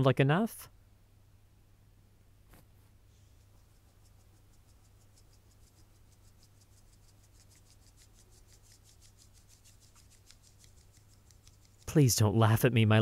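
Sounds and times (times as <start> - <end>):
faint rhythmic scratching in bowl: 3.1 - 12.1.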